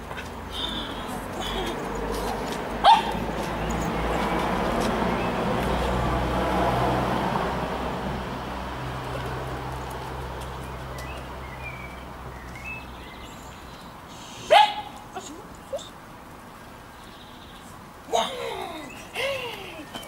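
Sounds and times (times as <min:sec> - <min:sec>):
vehicle engine hum: 0:00.0 - 0:20.0
small dog yelp: 0:02.8 - 0:03.2, 0:14.5 - 0:14.9.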